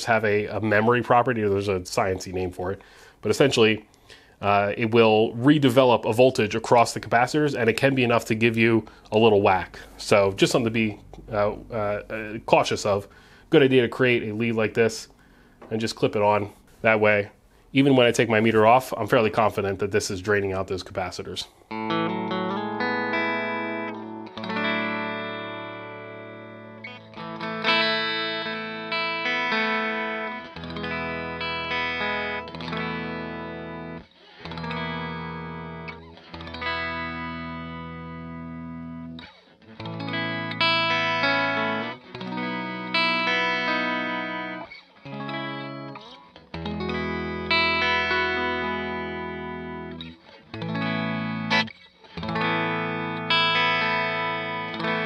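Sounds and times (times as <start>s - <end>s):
electric guitar chords strummed: 21.7s - 55.0s.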